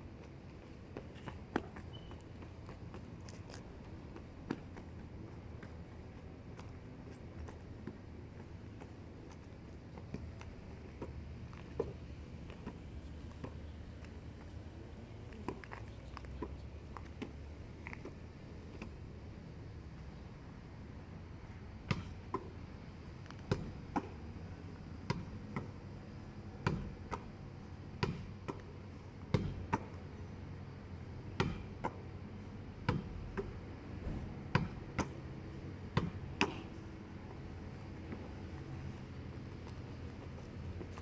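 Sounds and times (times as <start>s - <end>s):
ball bouncing on asphalt: 0.2s - 14.6s, 15.2s - 19.1s, 21.8s - 41.0s.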